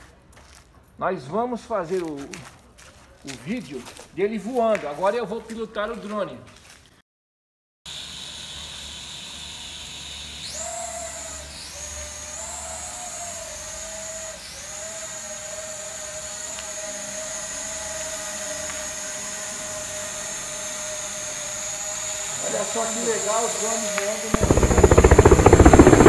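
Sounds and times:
toy drone propellers whining: 0:08.1 - 0:26.0.

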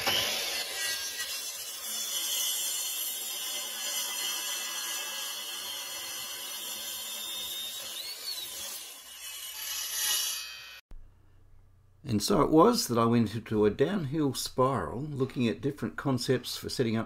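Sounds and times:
mitre saw cutting wood: 0:00.0 - 0:10.8.

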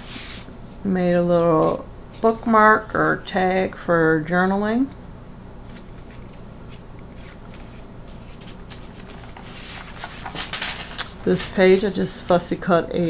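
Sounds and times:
low steady hum: 0:00.0 - 0:13.0
paper rustling: 0:05.6 - 0:12.1.

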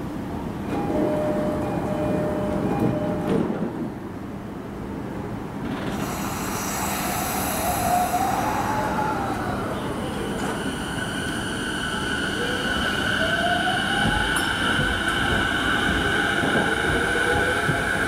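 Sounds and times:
train air hiss: 0:05.9 - 0:09.2.

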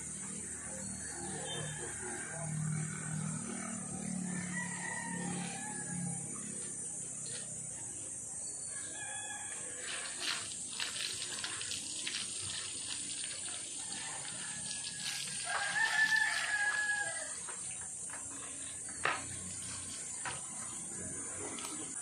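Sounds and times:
rooster crowing: 0:01.1 - 0:06.7, 0:08.7 - 0:10.2, 0:13.6 - 0:17.8
wiping and splashing water: 0:09.8 - 0:20.8.

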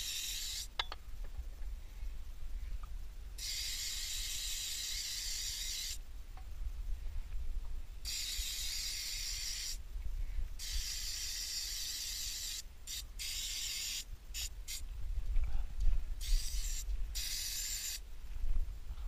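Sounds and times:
aerosol can spraying: 0:00.0 - 0:00.7, 0:03.4 - 0:06.0, 0:08.1 - 0:09.8, 0:10.6 - 0:14.8, 0:16.2 - 0:18.0.

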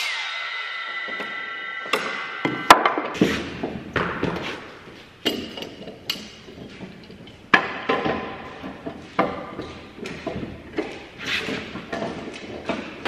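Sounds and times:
wooden boards knocking: 0:07.5 - 0:11.0.

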